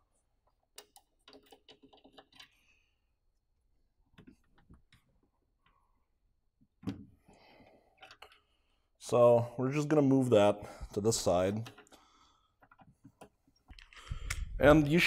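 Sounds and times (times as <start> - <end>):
small parts clicking and tapping: 0.5 - 2.7, 8.0 - 8.6, 11.6 - 14.4.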